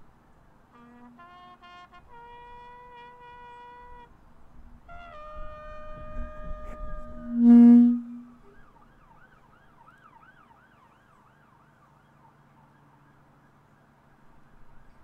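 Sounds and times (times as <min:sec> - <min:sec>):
brass-like sustained tones: 0:00.7 - 0:04.2, 0:04.9 - 0:08.6
loud low held note: 0:04.9 - 0:08.6
faint emergency siren wailing: 0:05.0 - 0:15.0.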